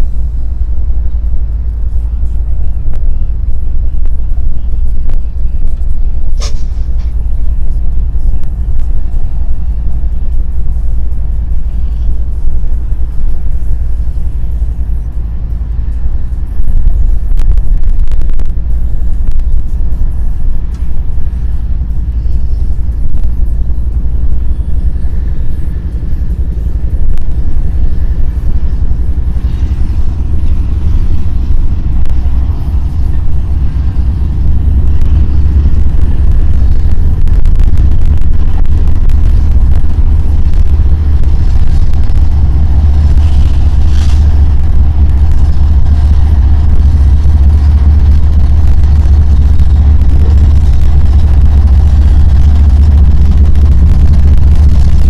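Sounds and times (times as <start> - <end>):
diesel locomotive engine rumble: 0.0 - 55.0.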